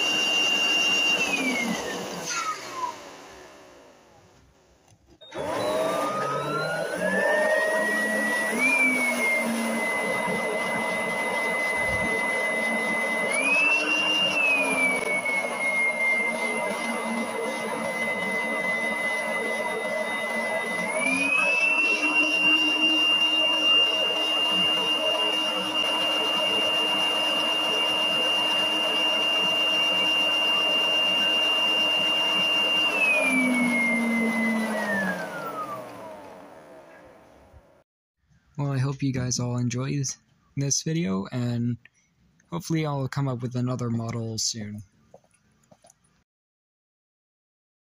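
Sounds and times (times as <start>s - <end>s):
piston engine whirring: 5.2s - 37.7s.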